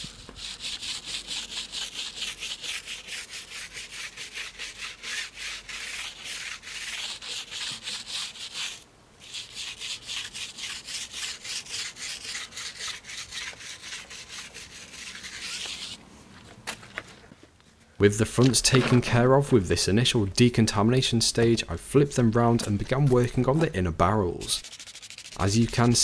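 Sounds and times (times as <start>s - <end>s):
brush scrubbing wet foam: 0.0s - 16.0s, 24.3s - 26.0s.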